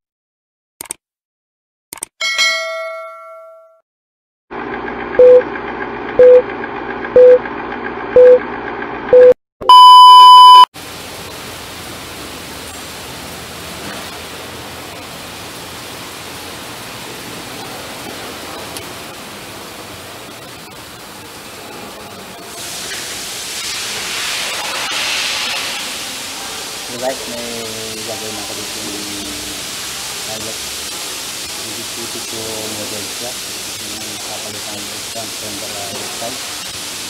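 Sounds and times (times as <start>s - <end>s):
longer higher beep: 5.2s - 5.4s, 6.2s - 6.4s, 7.2s - 7.4s, 8.2s - 8.4s, 9.1s - 10.7s
short beeps: 5.2s - 5.4s, 6.2s - 6.4s, 7.2s - 7.4s, 8.2s - 8.4s, 9.1s - 10.7s
workshop background hiss: 10.8s - 37.0s.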